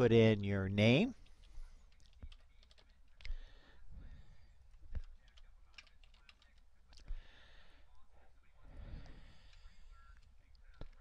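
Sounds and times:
faint keyboard keystrokes: 1.2s - 3.5s, 4.7s - 7.2s.

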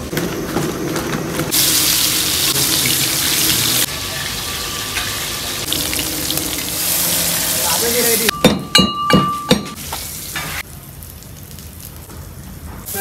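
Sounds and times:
fish sizzling in hot oil: 1.5s - 8.3s, 9.7s - 12.0s.

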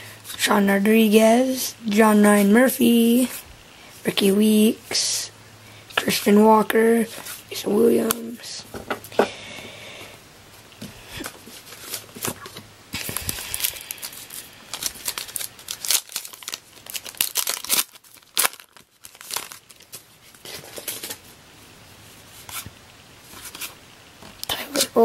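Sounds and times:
plastic wrapper tearing and crinkling: 11.6s - 21.2s.

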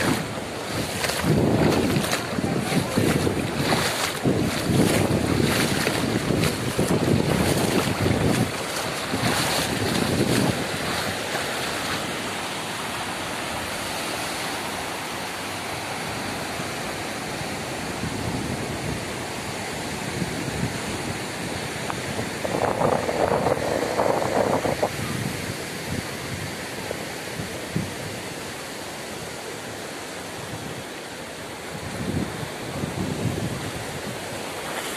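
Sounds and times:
wind buffeting microphone: 0.0s - 11.4s, 20.0s - 28.3s, 31.7s - 34.5s
feet splashing in surf: 0.0s - 17.8s, 21.8s - 28.9s, 31.6s - 34.9s
waves breaking on sand: 0.0s - 34.9s.

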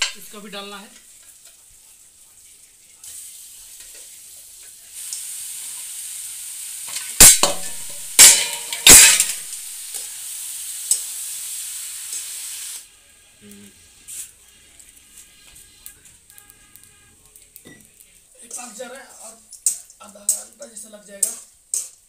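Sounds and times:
meat sizzling in hot oil: 0.0s - 12.9s, 13.5s - 22.0s
ladle clanking on pan: 6.9s - 9.5s.

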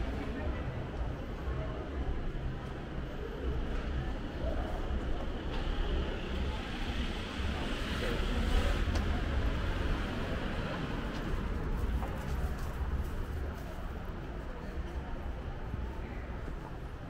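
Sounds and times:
low rumble of traffic: 0.0s - 17.0s.

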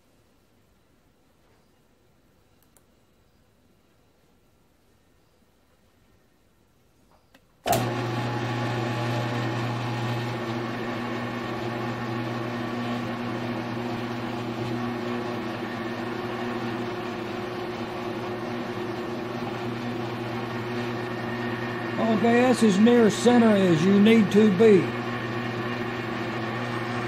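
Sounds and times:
mill-drill motor hum: 7.7s - 27.0s.

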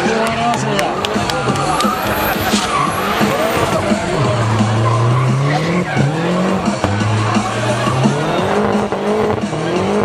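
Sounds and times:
tyres squealing on tarmac: 0.6s - 10.0s
car engine revving high: 0.7s - 10.0s.

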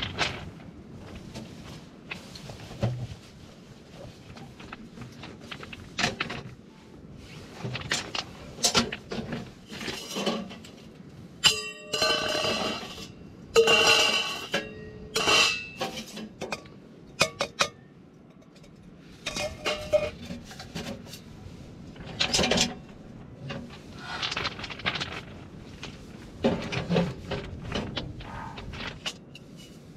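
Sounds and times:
metal stove parts clanking: 11.4s - 21.2s.

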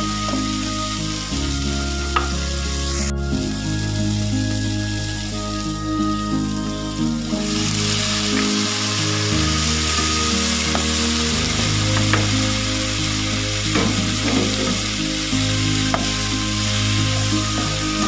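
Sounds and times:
food sizzling in hot oil: 0.0s - 18.0s.

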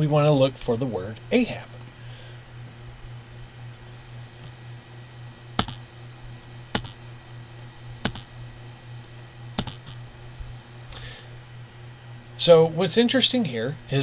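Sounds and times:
low steady hum: 0.0s - 14.0s
keyboard keys struck: 5.6s - 5.9s, 6.7s - 7.0s, 8.0s - 8.3s, 9.6s - 10.0s.

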